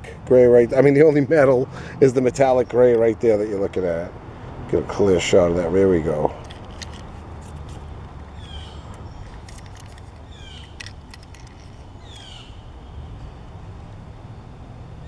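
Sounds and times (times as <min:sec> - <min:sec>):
toy truck clicks: 0:06.5 - 0:07.7, 0:08.8 - 0:12.3
bird chirping: 0:07.2 - 0:13.4.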